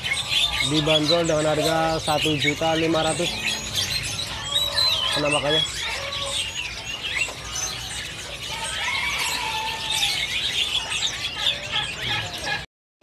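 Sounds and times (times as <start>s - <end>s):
birds chirping and whistling: 0.0s - 12.6s.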